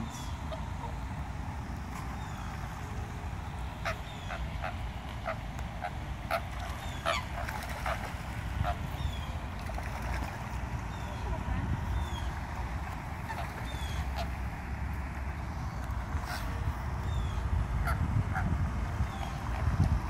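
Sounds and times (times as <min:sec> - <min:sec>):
steady low rumble: 0:00.0 - 0:20.0
waterfowl honking: 0:03.7 - 0:09.8, 0:13.2 - 0:14.4.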